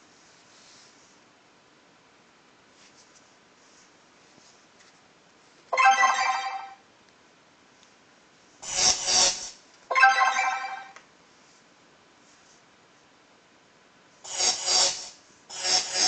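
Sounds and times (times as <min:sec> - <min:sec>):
buzzy electronic tone: 0:08.6 - 0:10.9, 0:14.3 - 0:16.0.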